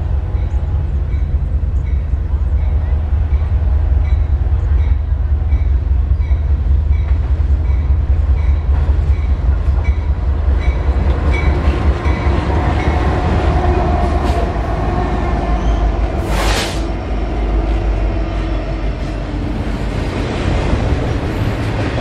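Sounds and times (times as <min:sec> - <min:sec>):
diesel locomotives rumbling: 0:00.0 - 0:22.0.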